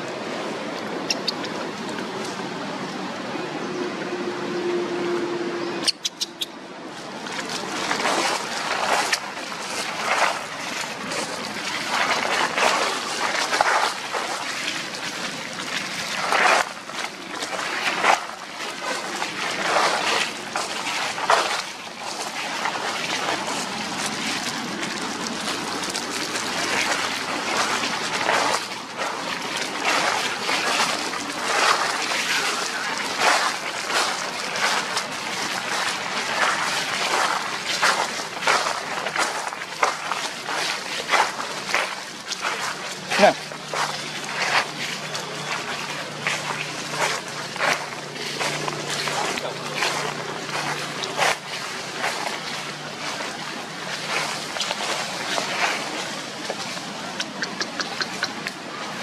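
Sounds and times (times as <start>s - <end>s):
dry leaves crunching underfoot: 7.0s - 59.0s.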